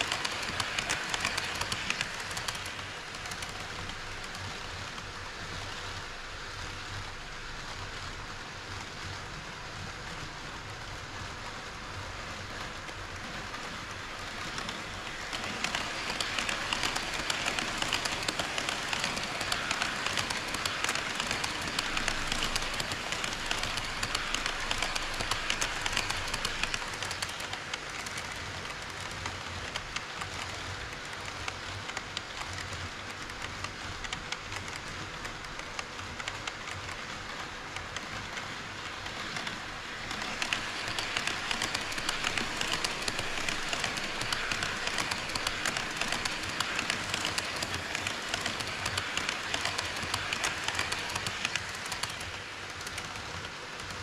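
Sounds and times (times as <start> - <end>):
model train wheels clicking: 0.0 - 54.0.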